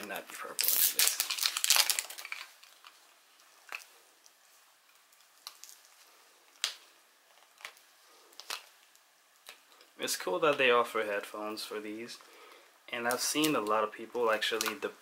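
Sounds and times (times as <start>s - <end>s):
plastic film crinkling: 0.0s - 9.9s, 13.0s - 14.9s.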